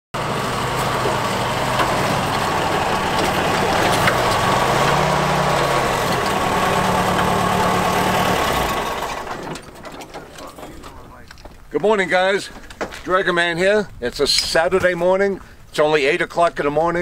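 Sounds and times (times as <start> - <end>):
jeep engine running: 0.1 - 11.2.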